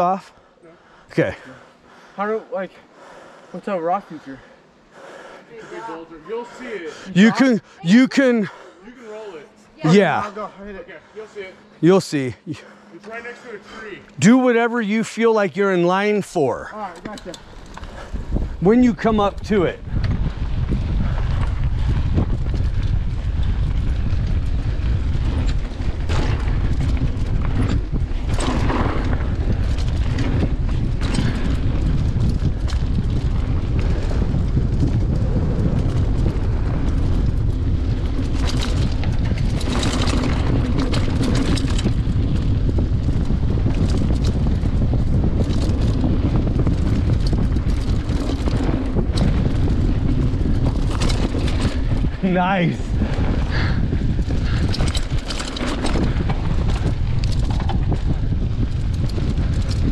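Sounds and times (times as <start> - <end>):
bike rattling: 9.4 - 59.9
tyres rolling on dirt: 17.0 - 59.9
wind buffeting microphone: 17.3 - 59.9.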